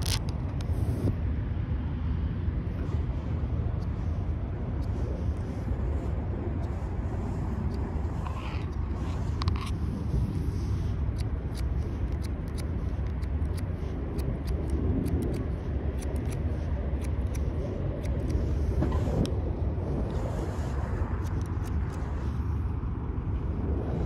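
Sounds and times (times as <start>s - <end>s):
low rumble of wind or traffic: 0.0s - 24.0s
scissors snipping hair: 10.9s - 19.4s, 21.1s - 22.1s.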